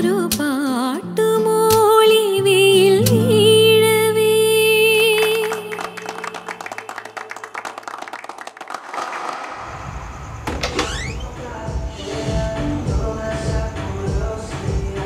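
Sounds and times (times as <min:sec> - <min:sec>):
acoustic guitar: 0:00.0 - 0:06.8
woman singing: 0:00.0 - 0:07.2
audience applause: 0:05.4 - 0:09.8
background music: 0:11.2 - 0:15.0.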